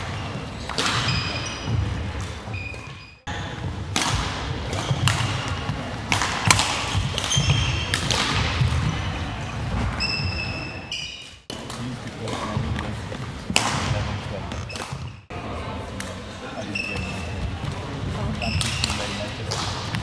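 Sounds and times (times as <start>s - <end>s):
court shoes squeaking and thudding: 0.0s - 15.3s, 16.4s - 20.0s
racket striking shuttlecock: 3.9s - 8.9s.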